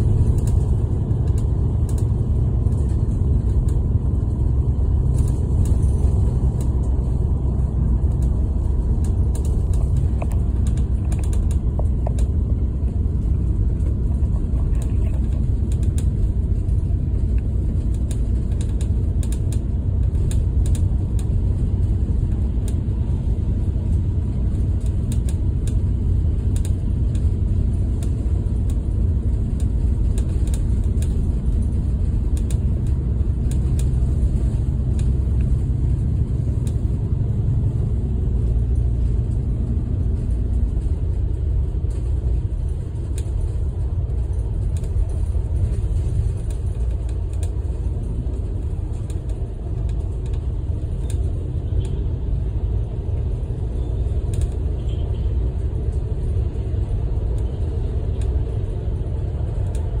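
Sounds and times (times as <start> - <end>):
bus engine and tyre rumble: 0.0 - 60.0
faint ticks and rattles: 0.0 - 60.0.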